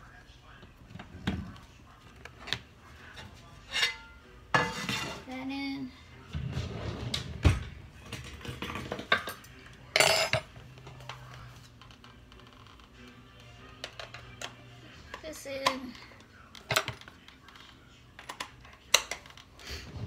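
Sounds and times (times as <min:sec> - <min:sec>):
metal cookware clattering: 0:03.1 - 0:05.4, 0:06.5 - 0:11.1.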